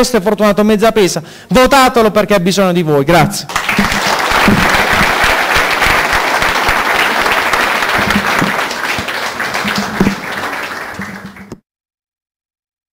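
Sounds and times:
audience applauding: 0:03.5 - 0:11.6.

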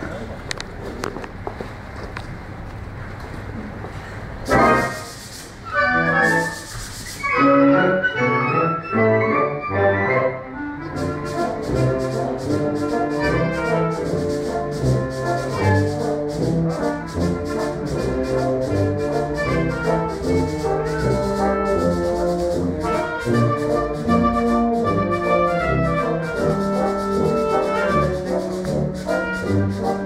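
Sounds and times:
wind band with brass playing: 0:04.4 - 0:30.0
sandpaper blocks rubbing together: 0:04.5 - 0:07.4, 0:11.0 - 0:30.0.

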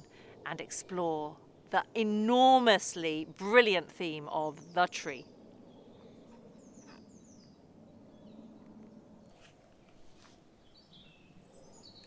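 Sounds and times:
small birds chirping: 0:04.4 - 0:09.4, 0:10.6 - 0:12.0.

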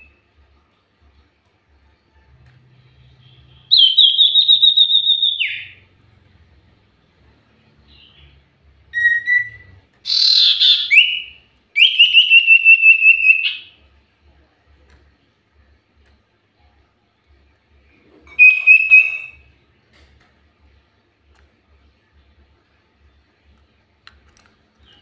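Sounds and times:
bird whistle: 0:03.2 - 0:05.8, 0:08.9 - 0:13.7, 0:18.3 - 0:19.5
bird trilling: 0:09.0 - 0:13.6, 0:18.3 - 0:19.4.

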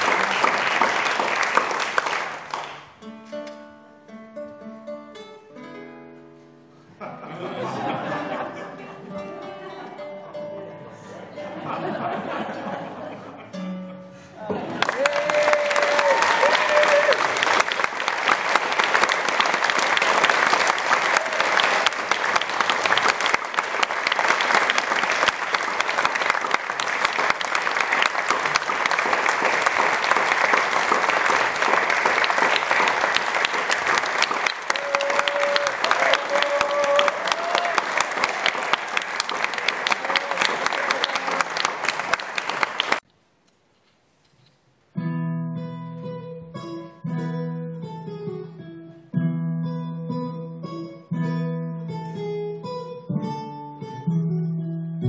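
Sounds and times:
audience applause: 0:00.0 - 0:03.0, 0:14.6 - 0:43.0.

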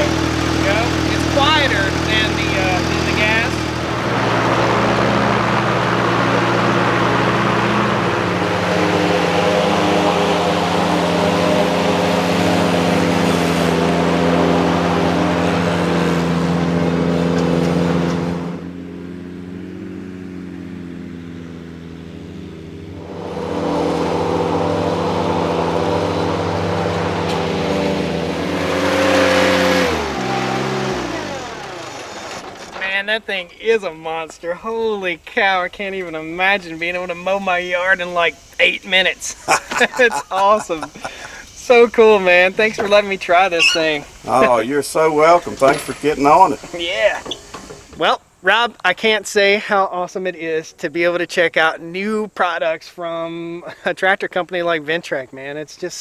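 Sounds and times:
mower engine running: 0:00.0 - 0:33.0.

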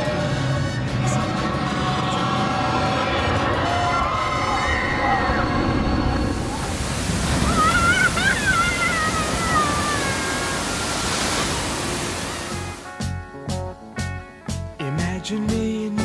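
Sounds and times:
rushing water: 0:06.0 - 0:13.0
heavy splash of raft: 0:06.3 - 0:12.9.

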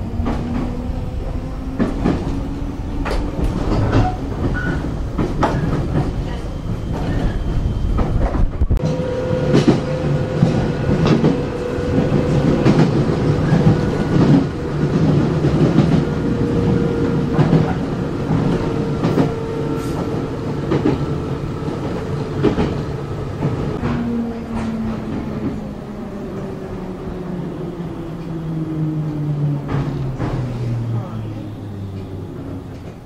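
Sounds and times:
rail joint clacks: 0:00.0 - 0:27.4, 0:28.1 - 0:33.0
wheels rumbling: 0:00.0 - 0:33.0.

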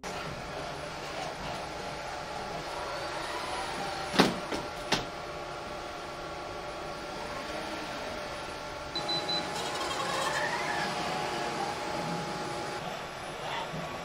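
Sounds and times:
steady mechanical hum: 0:00.0 - 0:14.0
robot joint motors whining: 0:09.0 - 0:12.8.

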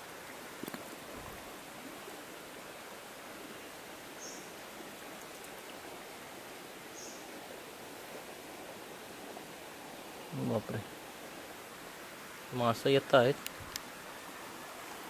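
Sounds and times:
stream trickling: 0:00.0 - 0:15.0.

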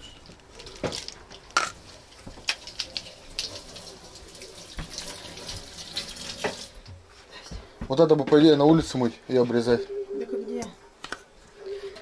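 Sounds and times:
tap water running into sink: 0:02.5 - 0:06.9.

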